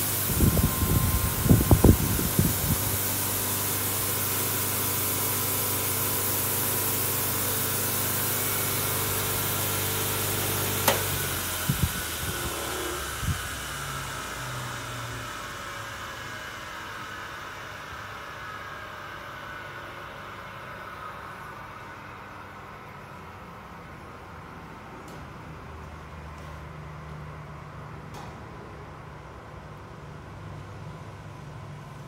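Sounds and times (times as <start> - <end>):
polishing mop whirring: 0.0 - 16.6
polisher motor hum: 8.3 - 15.6.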